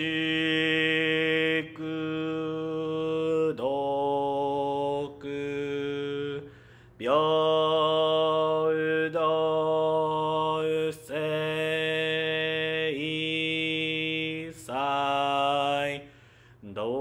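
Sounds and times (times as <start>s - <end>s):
man chanting: 0.0s - 17.0s
breaths: 6.4s - 7.0s, 16.0s - 16.7s.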